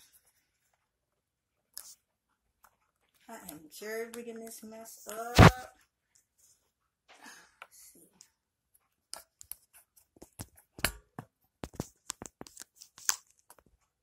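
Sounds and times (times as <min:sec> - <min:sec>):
handling noise on phone: 0:09.8 - 0:13.7.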